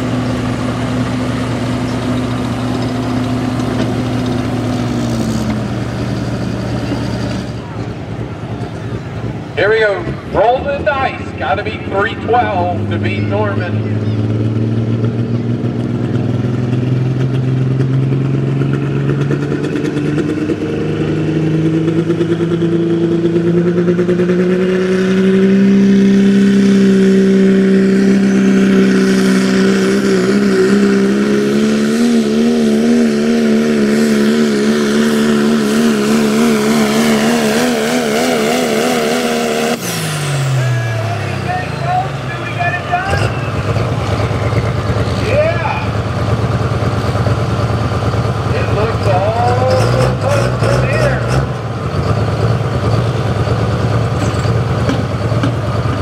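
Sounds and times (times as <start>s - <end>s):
pickup truck engine at full throttle: 0.0s - 56.0s.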